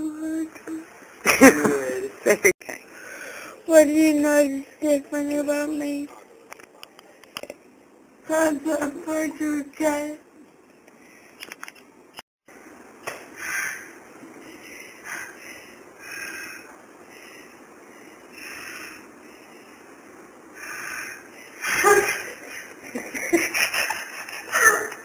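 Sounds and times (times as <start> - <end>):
person breathing: 2.9 - 3.6, 13.4 - 21.7.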